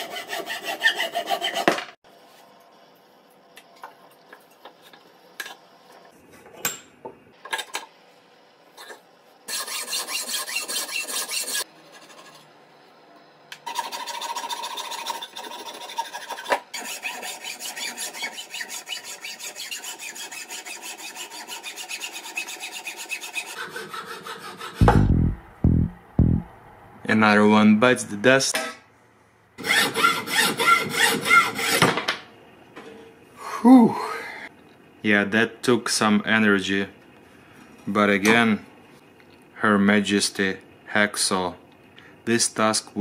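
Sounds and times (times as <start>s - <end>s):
hacksaw rasping strokes: 0.0s - 1.8s, 9.5s - 12.3s, 13.7s - 24.9s, 29.6s - 31.8s.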